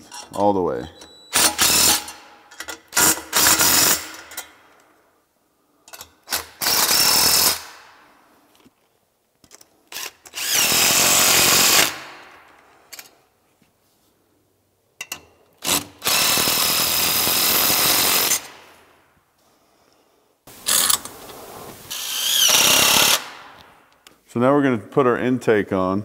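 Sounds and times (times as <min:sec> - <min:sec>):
cordless driver whirring: 0:10.0 - 0:12.0, 0:21.9 - 0:23.4.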